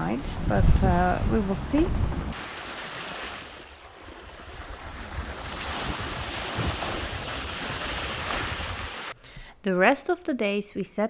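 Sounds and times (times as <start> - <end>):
wind buffeting microphone: 0.0 - 2.4, 4.3 - 9.1
sea rushing: 2.1 - 9.2.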